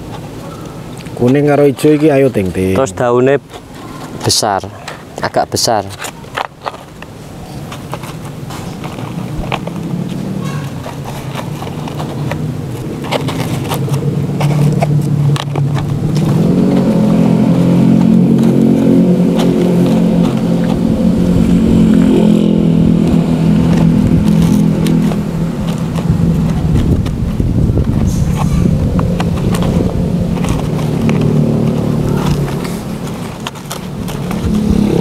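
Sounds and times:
engine running: 7.7s - 35.0s.

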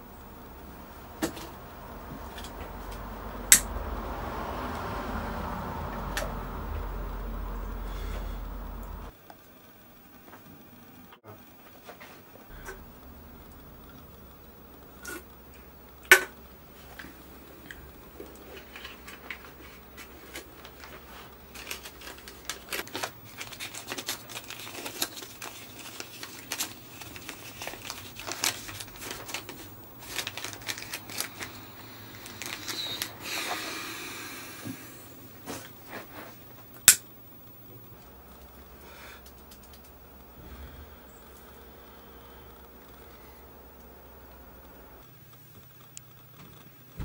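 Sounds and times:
paper rustling and crinkling: 18.3s - 33.2s.

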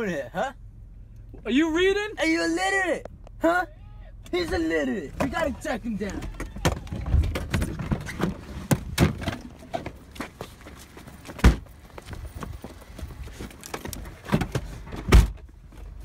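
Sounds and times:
knocks and thuds: 6.2s - 10.0s
footsteps running on pavement: 9.8s - 13.6s.

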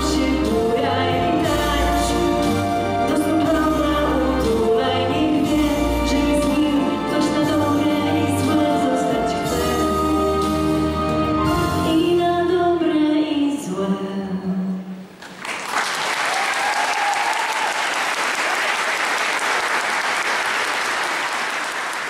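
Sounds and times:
person singing a waltz: 0.0s - 15.0s
audience applause: 15.2s - 22.0s.

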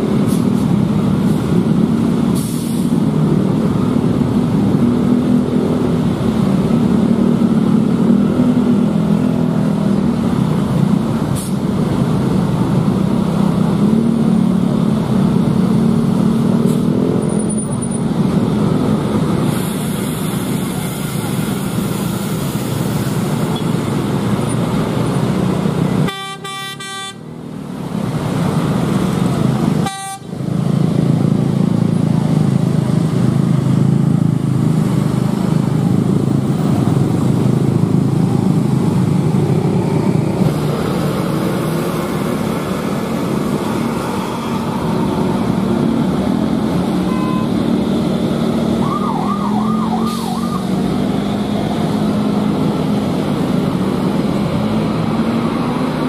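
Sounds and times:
bus and motorcycle engines rumbling: 0.0s - 56.0s
vehicle horn: 26.1s - 27.2s, 29.8s - 30.3s, 47.0s - 47.5s.

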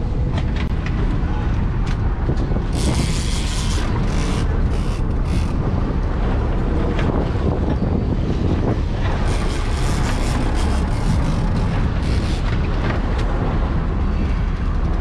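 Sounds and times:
sea washing against boat: 0.0s - 15.0s
wind buffeting microphone: 0.0s - 15.0s.

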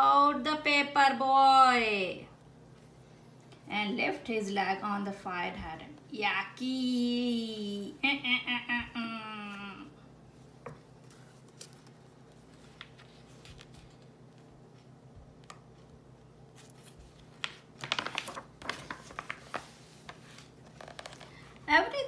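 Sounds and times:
page turning rustle: 11.0s - 14.1s, 16.5s - 21.5s.

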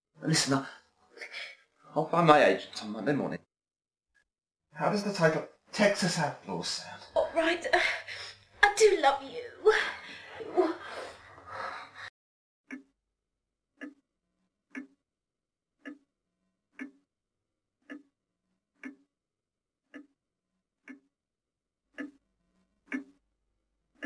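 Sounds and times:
pendulum clock ticking: 4.8s - 10.8s, 12.7s - 13.0s, 13.7s - 14.1s, 14.7s - 15.1s, 15.7s - 17.1s, 17.7s - 19.2s, 19.8s - 21.2s, 21.8s - 22.2s, 22.8s - 24.0s.

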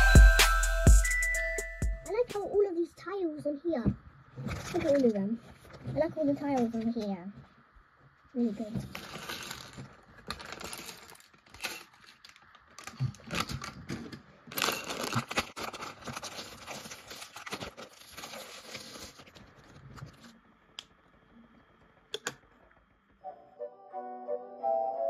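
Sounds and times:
plastic bricks rattling: 8.8s - 19.2s
plastic bag crinkling: 8.8s - 20.3s.

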